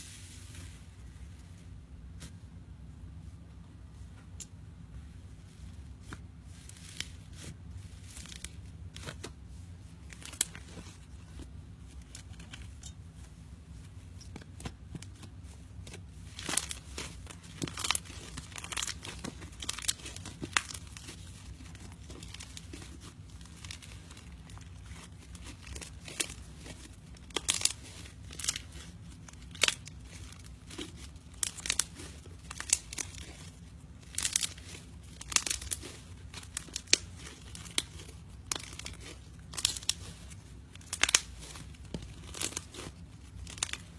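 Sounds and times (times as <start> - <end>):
slime popping and crackling: 10.0 - 13.0, 14.2 - 43.9.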